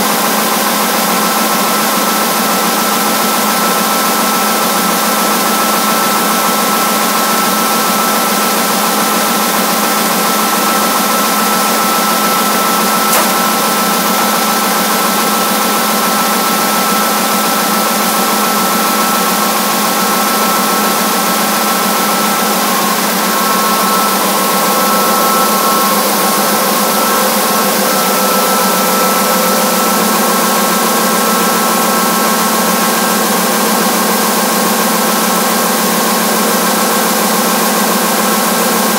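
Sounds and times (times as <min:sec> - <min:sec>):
printing press mechanical drone: 0:10.8 - 0:16.9, 0:18.5 - 0:34.3
sharp click: 0:13.1 - 0:13.9.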